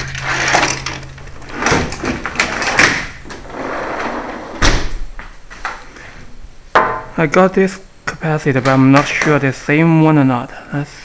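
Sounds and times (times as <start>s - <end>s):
sliding glass door rolling: 0.0s - 4.8s.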